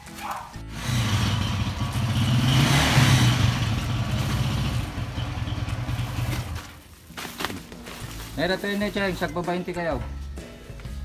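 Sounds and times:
motorcycle engine running: 0.7s - 6.8s.

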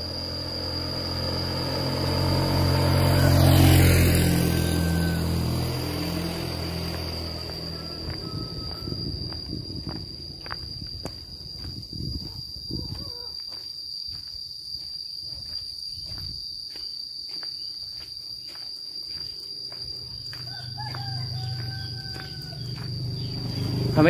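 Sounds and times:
high insect drone: 0.0s - 24.0s
rooster crowing: 2.8s - 9.5s, 20.1s - 24.0s
footsteps on dirt path: 6.0s - 23.8s.

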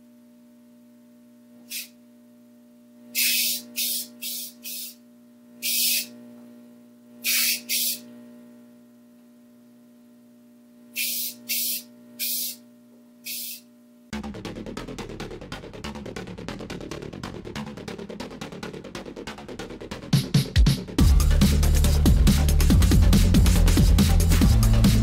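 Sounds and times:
aerosol spray can hissing: 1.7s - 1.9s, 3.2s - 5.0s, 5.6s - 6.1s, 7.2s - 8.0s, 11.0s - 12.6s, 13.2s - 13.6s.

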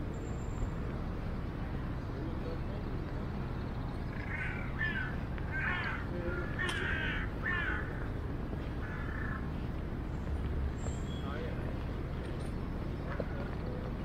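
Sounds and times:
city traffic hum: 0.0s - 14.0s
crows cawing: 4.1s - 8.2s, 8.8s - 9.5s.

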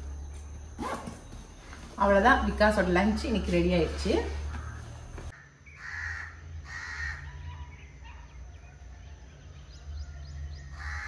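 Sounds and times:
harsh hoarse bird calls: 4.5s - 8.4s, 10.5s - 11.0s.

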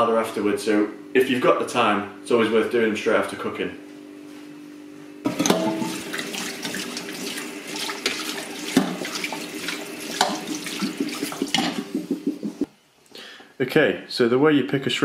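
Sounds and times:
tap water splashing in colander: 5.3s - 12.6s
sharp knocks: 11.4s - 12.7s.

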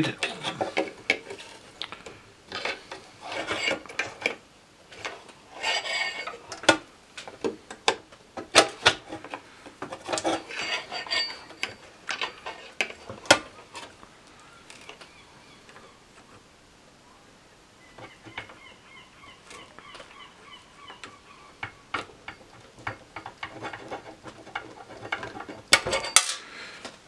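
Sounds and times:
soldering tools scraping and clicking: 5.0s - 13.9s.

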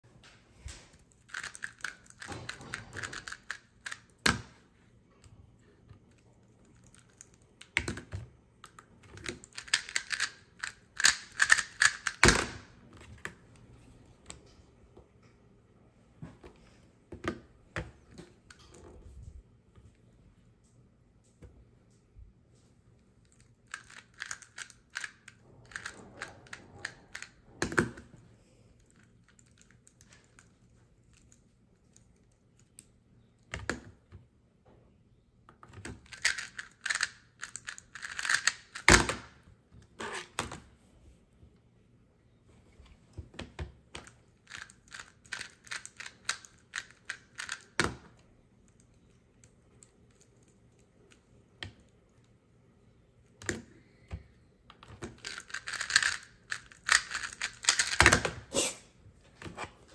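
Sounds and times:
fast clicking of speed cube: 9.2s - 12.6s, 36.0s - 39.3s, 44.5s - 47.9s, 55.2s - 58.4s.

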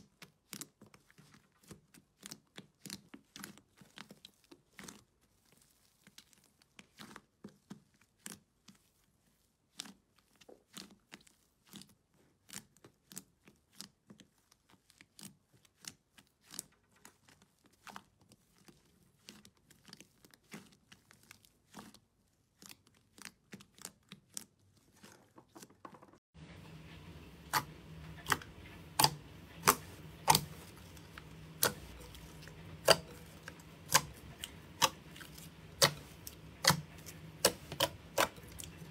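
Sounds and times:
slime crackling and popping: 0.0s - 25.2s, 27.4s - 38.9s
steady low hum: 26.4s - 38.9s
sharp wet slime pops: 29.0s - 30.7s, 31.6s - 34.2s, 34.8s - 38.9s.

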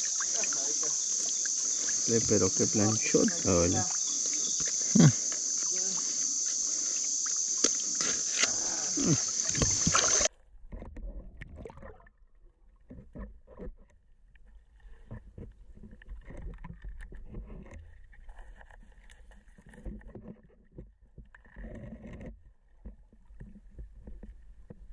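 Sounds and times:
insects chirring: 0.0s - 10.3s.

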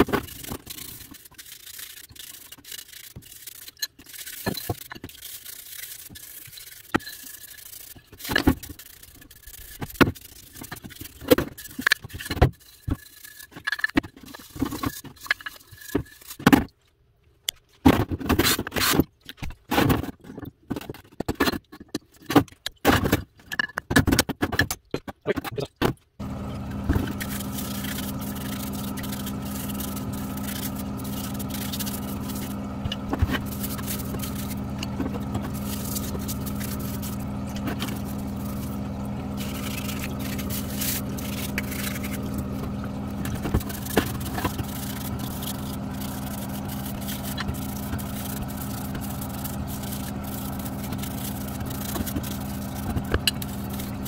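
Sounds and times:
steady motor hum: 0.0s - 13.1s, 26.2s - 54.0s
brush scrubbing metal parts: 0.0s - 16.5s, 25.3s - 54.0s.

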